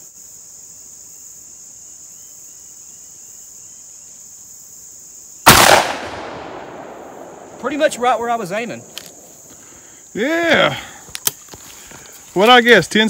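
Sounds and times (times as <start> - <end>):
crickets chirring: 0.0 - 13.0
shotgun shot with echo: 5.5 - 9.0.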